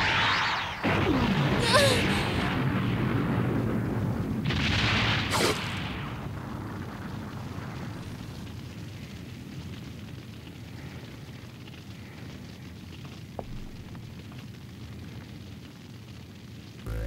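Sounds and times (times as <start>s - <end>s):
explosion blast: 0.1s - 7.8s
deep explosion rumble: 0.8s - 9.0s, 13.2s - 14.4s.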